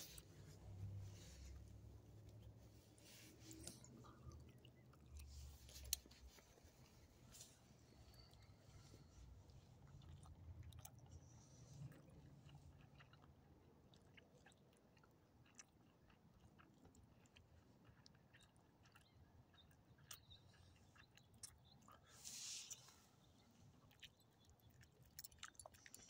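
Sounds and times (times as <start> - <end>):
dog chewing food: 0.0 - 22.1, 23.3 - 26.0.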